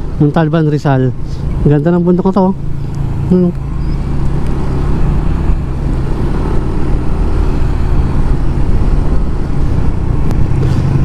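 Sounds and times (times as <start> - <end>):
motorcycle engine running: 1.7 - 11.0
wind noise: 3.0 - 11.0.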